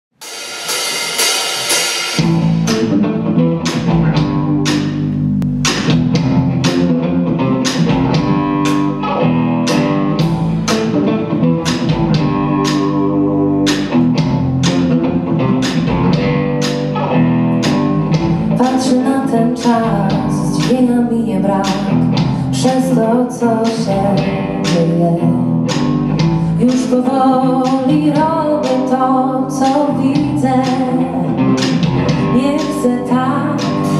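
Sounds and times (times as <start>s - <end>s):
drum and cymbal hits: 0.1s - 7.0s
rock band playing: 0.1s - 33.9s
high ringing guitar: 0.2s - 27.6s.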